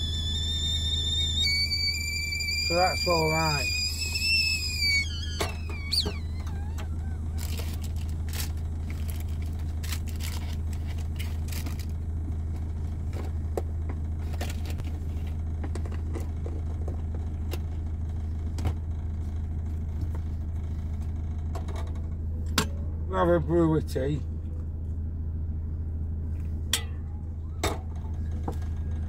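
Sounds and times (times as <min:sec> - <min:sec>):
high whistling tone: 0:00.0 - 0:07.5
van engine idling: 0:00.0 - 0:29.0.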